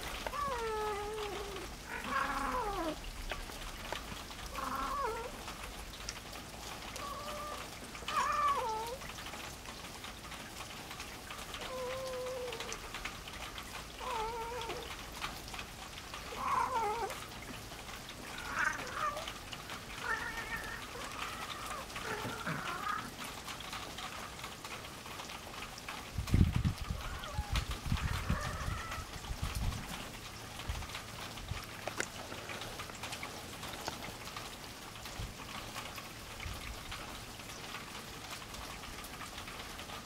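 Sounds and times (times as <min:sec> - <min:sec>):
cat meowing: 0:00.2 - 0:03.0, 0:04.5 - 0:05.4, 0:07.0 - 0:09.0, 0:11.6 - 0:12.8, 0:14.0 - 0:14.9, 0:16.3 - 0:17.2, 0:18.2 - 0:23.2, 0:27.0 - 0:29.2.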